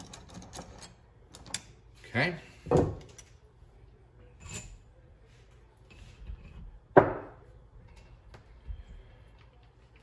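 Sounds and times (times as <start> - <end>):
tools knocking on workbench: 6.9 - 7.4.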